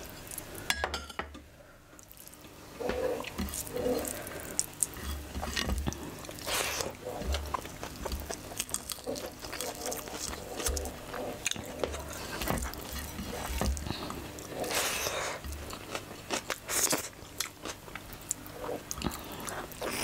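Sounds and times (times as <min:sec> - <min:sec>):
hand mixing rice and curry: 0:02.0 - 0:17.2
person chewing: 0:02.0 - 0:20.0.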